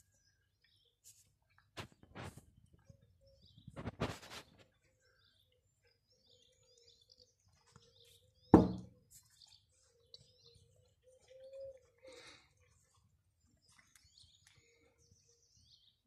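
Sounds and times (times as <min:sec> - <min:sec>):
small birds chirping faintly: 0:00.0 - 0:16.0
sharp thump: 0:08.6 - 0:08.9.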